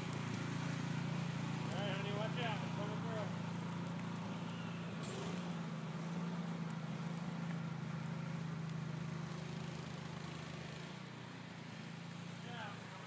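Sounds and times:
engine droning: 0.0s - 13.0s.

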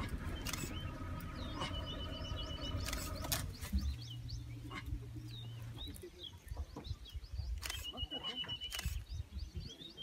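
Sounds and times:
birds chirping: 0.0s - 10.0s
sharp clicks: 7.6s - 8.0s, 8.7s - 9.1s.

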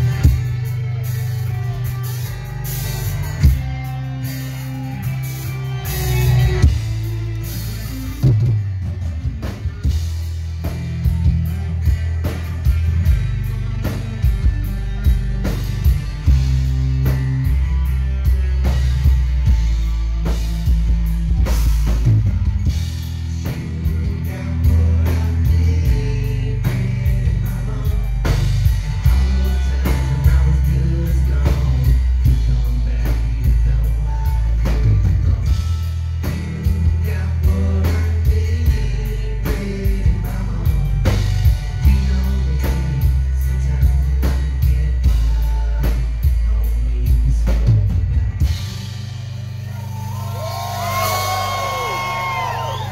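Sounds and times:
live band playing: 0.0s - 52.9s
two people singing: 23.3s - 48.9s.

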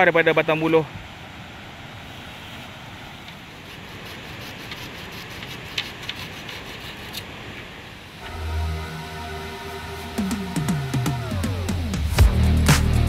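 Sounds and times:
flowing river water: 0.0s - 12.0s
bamboo knocking and rubbing: 3.6s - 7.2s.

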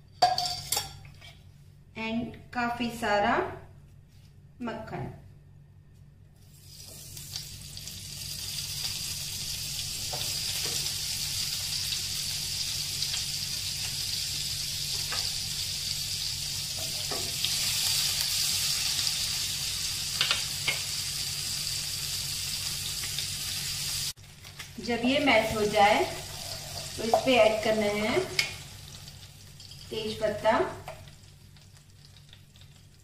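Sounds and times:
butter sizzling in hot oil: 6.5s - 33.0s.

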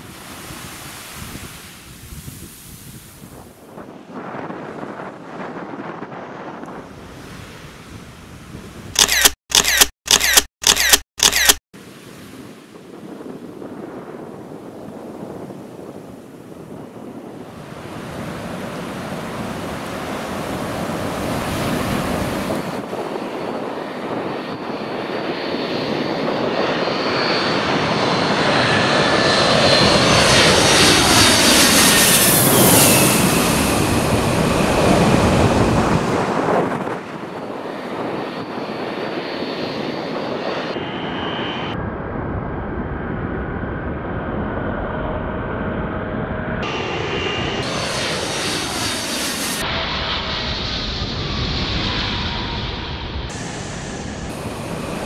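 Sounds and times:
airliner jet engines passing overhead: 0.0s - 9.3s, 11.4s - 55.0s
steady jet engine sound: 46.5s - 55.0s.

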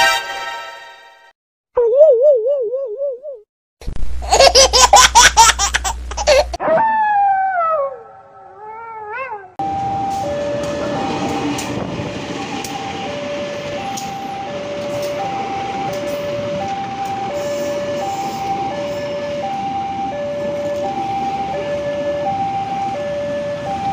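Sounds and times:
animal crying and howling: 6.6s - 9.6s
train rumbling past: 9.6s - 23.9s
two-tone crossing alarm: 9.6s - 23.9s.

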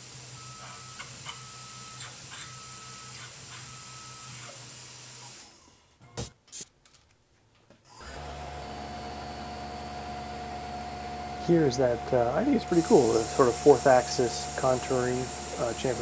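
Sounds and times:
drill cutting tone: 7.9s - 16.0s
mill drilling metal: 7.9s - 16.0s
machine hum: 8.0s - 16.0s.

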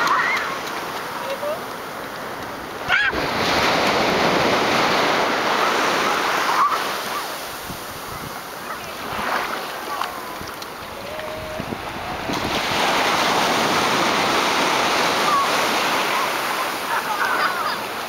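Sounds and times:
surf washing over sand: 0.0s - 18.0s.

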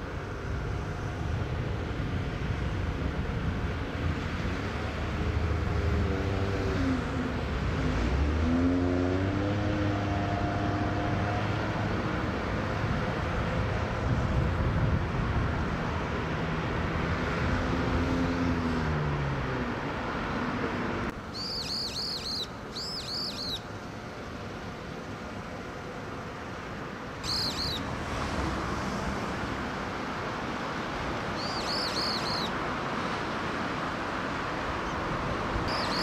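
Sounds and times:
low engine hum: 0.0s - 36.0s
bird calling high down-sweeping notes: 21.3s - 23.6s, 27.2s - 27.9s, 31.4s - 32.6s.

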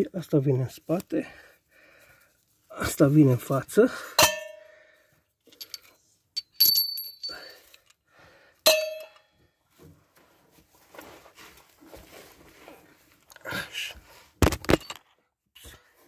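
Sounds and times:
metal tools clinking: 5.5s - 8.0s, 14.6s - 15.0s.

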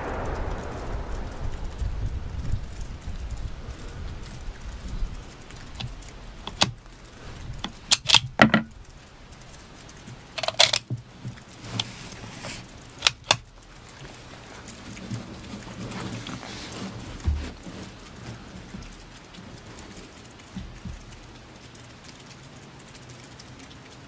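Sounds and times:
rain hiss: 0.0s - 24.0s
rifle bolt action clicks: 5.8s - 6.8s, 7.6s - 8.7s, 10.4s - 10.9s, 13.0s - 13.5s.

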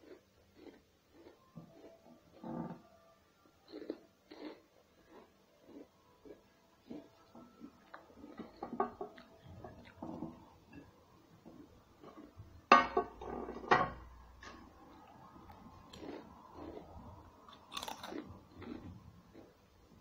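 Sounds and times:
crunchy bites: 17.5s - 18.9s.

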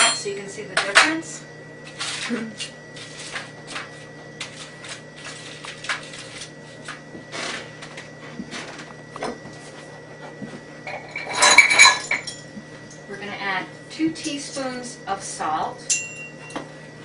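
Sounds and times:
aluminium foil crinkling: 1.9s - 7.6s.

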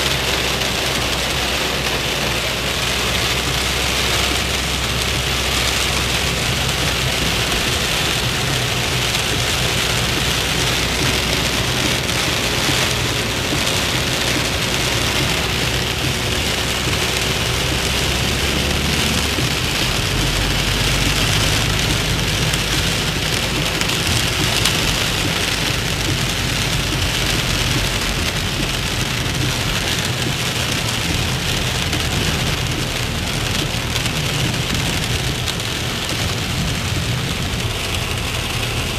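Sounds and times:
car engine running low: 0.0s - 38.9s
heavy rain on car roof: 0.0s - 38.9s.

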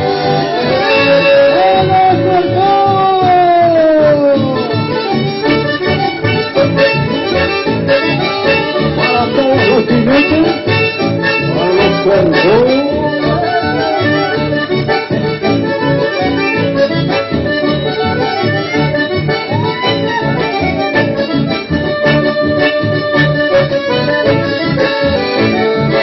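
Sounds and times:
accordion folk dance music: 0.0s - 26.0s
pulsing bass beat: 8.9s - 14.7s.

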